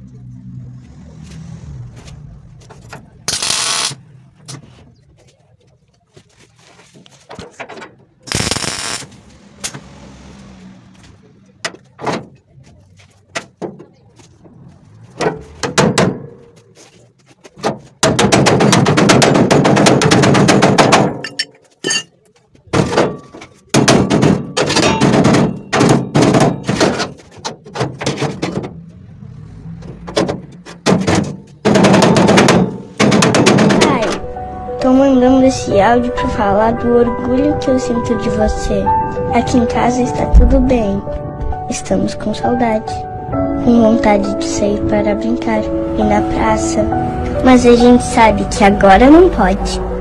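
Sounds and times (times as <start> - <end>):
crackling bursts of rapid impacts: 8.2 - 9.9, 17.7 - 21.2, 30.0 - 34.0.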